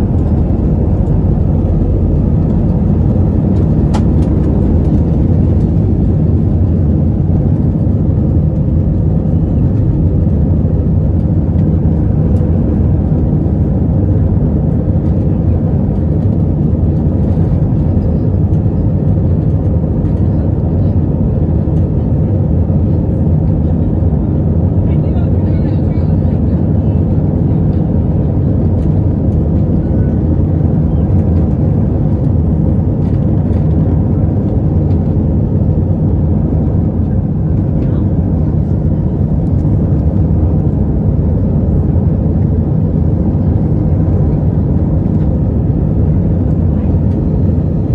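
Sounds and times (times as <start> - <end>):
jet engines roaring in cabin: 0.0 - 47.9.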